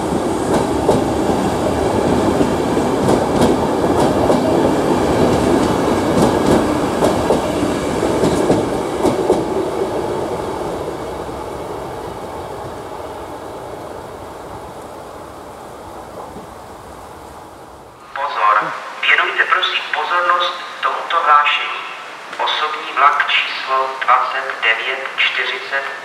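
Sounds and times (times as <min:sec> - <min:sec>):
train wheels clicking over rail joints: 0:02.1 - 0:09.7.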